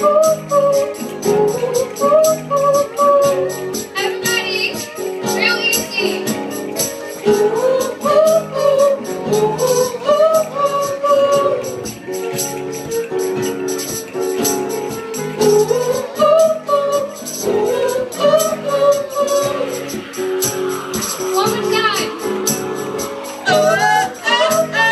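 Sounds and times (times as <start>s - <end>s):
woman singing: 0.0s - 12.0s, 14.9s - 19.8s, 23.4s - 24.9s
high rhythmic percussion: 0.0s - 24.9s
strummed acoustic guitar: 0.0s - 24.9s.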